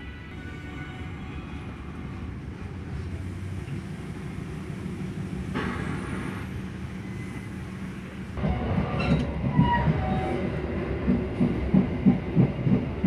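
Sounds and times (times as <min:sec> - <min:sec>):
train coach rumble and hum: 0:00.0 - 0:13.0.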